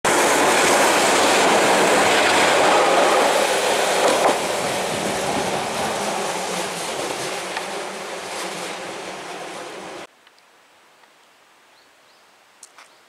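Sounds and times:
train wheels on rails: 0:00.1 - 0:10.1.

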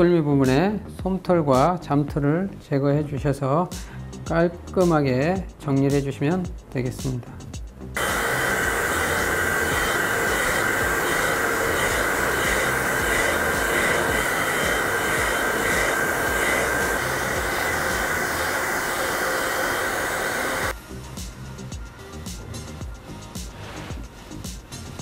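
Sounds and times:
hair dryer blowing: 0:08.0 - 0:20.8.

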